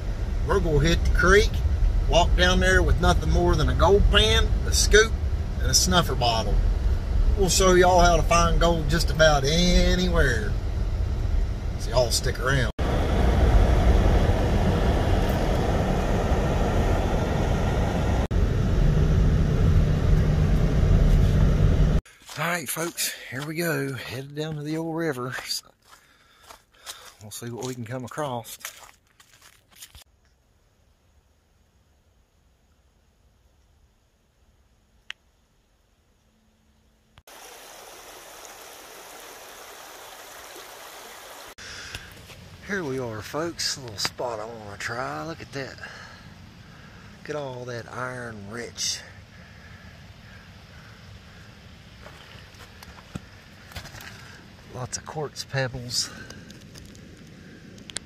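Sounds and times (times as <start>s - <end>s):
car road and engine rumble: 0.0s - 22.0s
creek water flowing: 37.3s - 43.6s.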